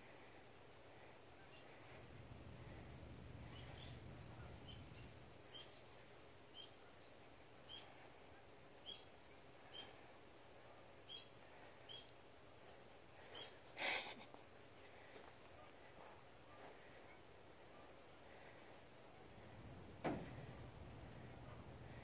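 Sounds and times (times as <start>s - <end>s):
faint high chirp: 3.5s - 5.9s, 8.8s - 10.0s
breathy huff or rustle: 13.2s - 15.4s.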